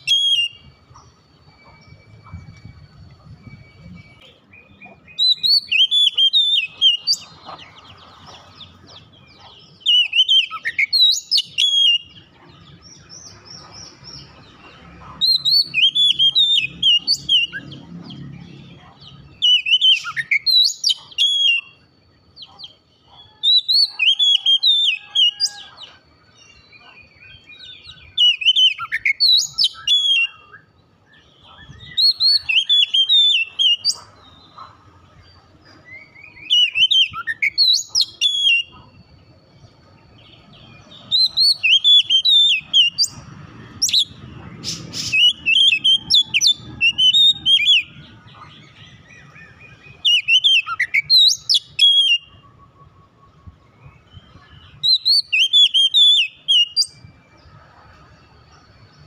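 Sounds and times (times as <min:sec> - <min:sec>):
bird singing whistled phrases: 0:00.0 - 0:07.4, 0:09.4 - 0:12.3, 0:15.2 - 0:21.8, 0:27.2 - 0:34.6, 0:35.9 - 0:38.9, 0:40.7 - 0:43.2, 0:48.7 - 0:57.0.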